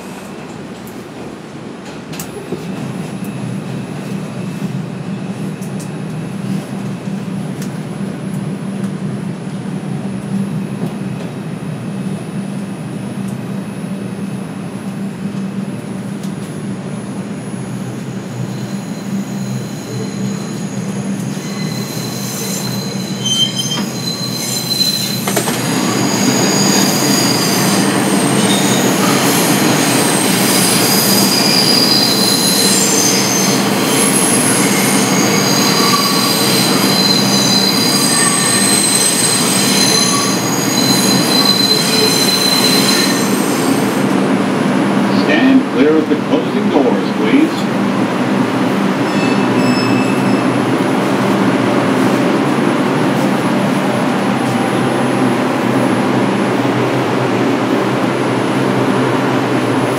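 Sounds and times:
subway car humming in tunnel: 0:00.0 - 0:59.9
steel wheels squealing on rails: 0:17.4 - 0:44.2, 0:49.0 - 0:52.3.

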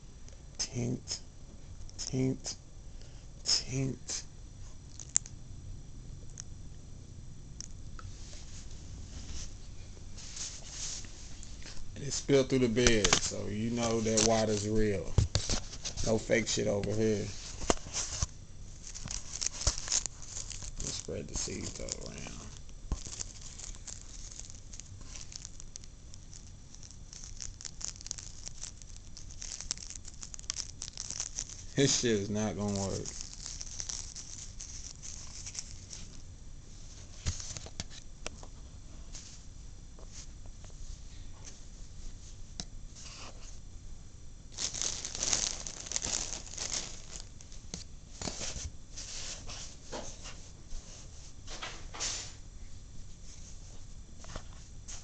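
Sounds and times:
seeds ticking onto cotton balls: 0:11.6 - 0:15.4, 0:16.0 - 0:36.3, 0:44.5 - 0:48.3
papery tearing rustling: 0:12.1 - 0:36.2, 0:44.5 - 0:47.6.

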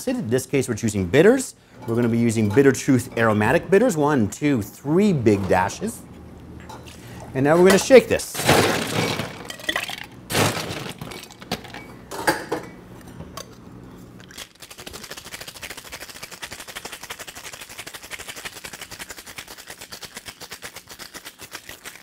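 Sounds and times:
ice rattling in shaker: 0:08.6 - 0:11.6, 0:14.2 - 0:22.0.

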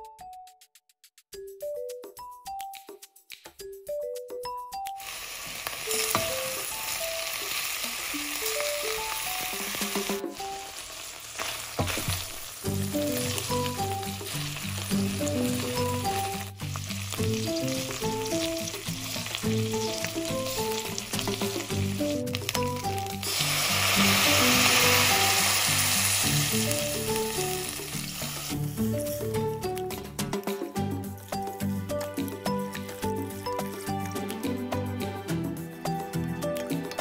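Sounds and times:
background music: 0:00.0 - 0:10.8, 0:12.0 - 0:37.0
prawn shells sizzling in oil: 0:05.0 - 0:30.0.

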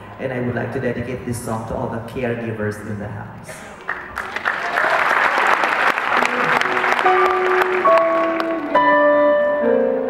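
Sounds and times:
audience applauding: 0:03.6 - 0:08.9
keyboard long held notes: 0:06.1 - 0:10.0.

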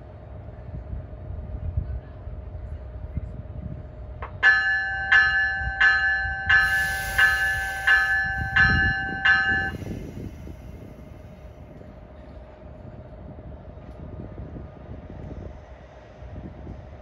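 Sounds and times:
train bell ringing: 0:04.3 - 0:10.9
high hiss of air: 0:06.5 - 0:11.5.

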